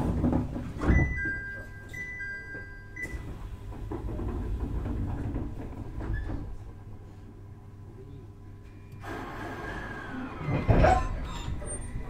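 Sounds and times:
knocks and rattles: 0.0 - 1.4, 3.7 - 6.6
train interior rumble: 0.0 - 7.8, 9.0 - 12.0.

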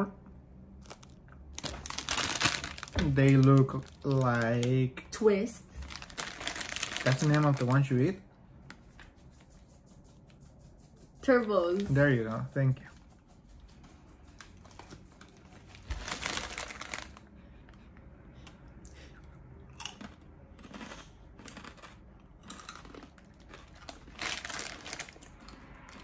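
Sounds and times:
plastic bag crinkling: 0.8 - 5.1, 5.7 - 8.2, 14.6 - 17.3, 22.7 - 26.0
snack crunching while chewed: 18.8 - 26.0.

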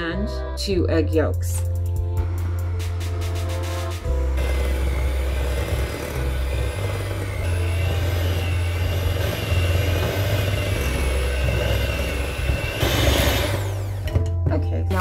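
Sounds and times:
electric hand mixer whining: 4.0 - 14.3.

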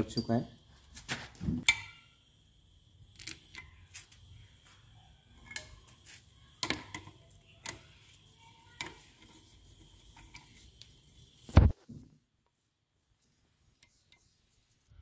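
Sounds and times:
metal tools clinking on metal: 0.0 - 0.6, 1.3 - 2.1, 3.1 - 3.8.

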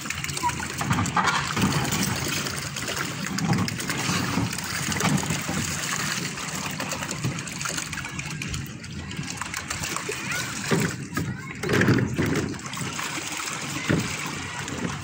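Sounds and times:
water churning and splashing: 0.0 - 15.0.

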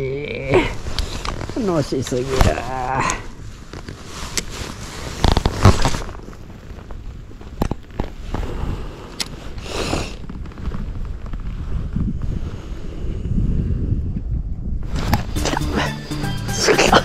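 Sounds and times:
low wind rumble: 0.0 - 17.0
jacket rustling: 0.6 - 8.2.

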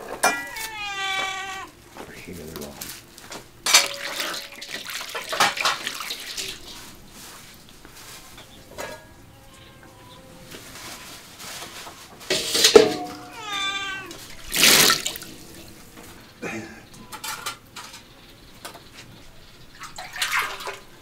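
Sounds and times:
cat meowing: 0.2 - 1.8, 9.1 - 11.1, 13.0 - 15.0
water poured into metal basin: 3.6 - 7.7, 14.1 - 16.1, 19.7 - 21.0.

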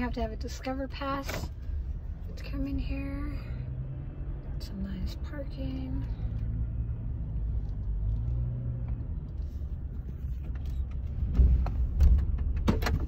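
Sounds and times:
car engine and tyres rumble: 0.0 - 13.0.

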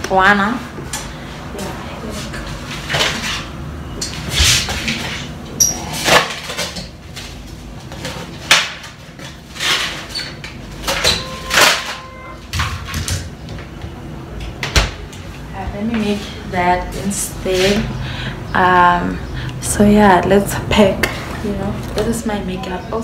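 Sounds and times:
items knocking and rustling in freezer: 6.0 - 13.7.

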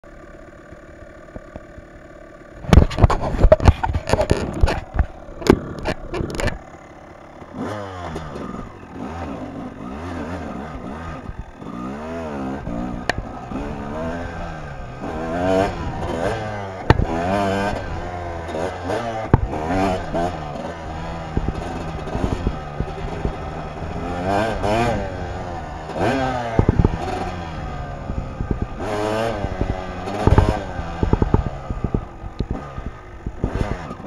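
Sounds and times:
dirt bike engine: 0.0 - 34.0
loud knocks and clatter: 15.5 - 17.8, 19.2 - 20.3, 30.1 - 32.7.

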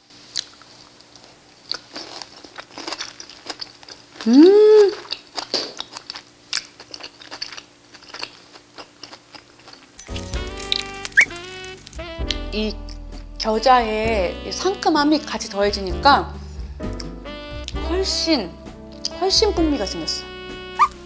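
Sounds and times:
person chewing food: 0.3 - 12.0
person saying mmm: 4.2 - 5.0.

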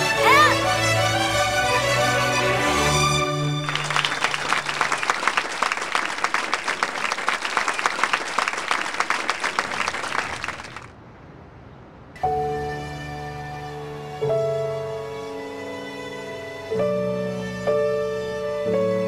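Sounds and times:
music: 0.0 - 4.1, 12.2 - 19.0
audience applauding: 2.4 - 10.9.

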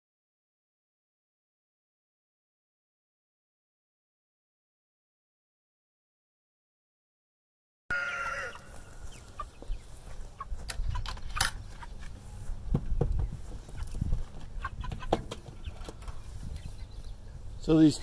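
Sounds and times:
chick chirps: 7.9 - 18.0
chickens calling and clucking: 7.9 - 18.0.

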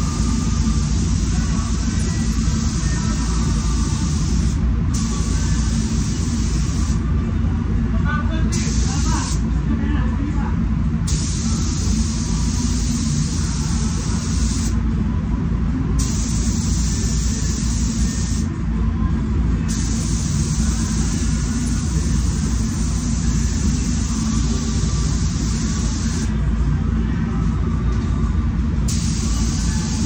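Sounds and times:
low ventilation rumble: 0.0 - 30.0
spray gun hissing: 8.6 - 9.4, 16.0 - 18.4, 19.7 - 26.3, 28.9 - 30.0.

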